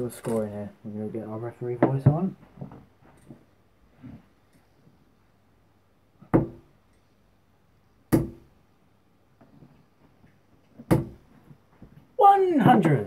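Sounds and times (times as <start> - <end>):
darts striking a dartboard: 6.3 - 6.7, 8.1 - 8.5, 10.8 - 11.2.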